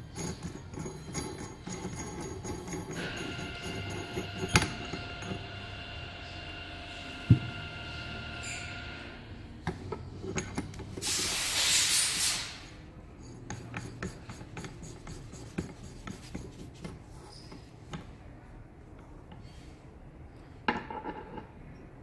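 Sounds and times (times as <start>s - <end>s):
rustling rub: 13.8s - 17.4s.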